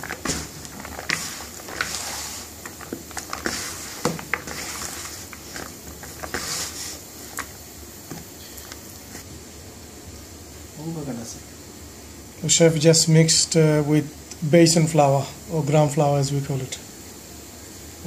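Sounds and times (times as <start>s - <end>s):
hand squelching batter: 0.0s - 7.6s.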